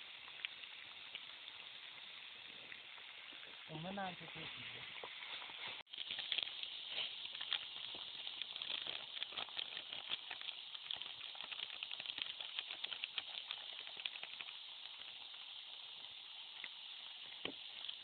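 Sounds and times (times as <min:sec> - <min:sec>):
onions sizzling and crackling: 0:00.0 - 0:18.0
gas stove hiss: 0:02.5 - 0:18.0.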